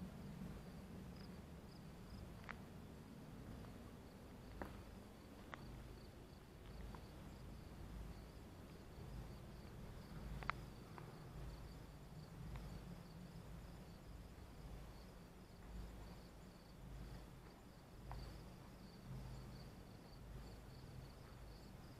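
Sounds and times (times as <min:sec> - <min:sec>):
crickets chirping: 0:00.0 - 0:21.9.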